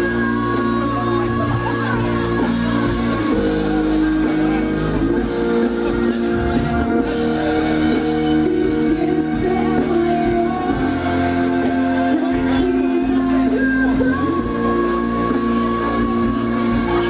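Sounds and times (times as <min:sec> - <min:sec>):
live pop music over loudspeakers: 0:00.0 - 0:17.0
person singing: 0:00.0 - 0:17.0.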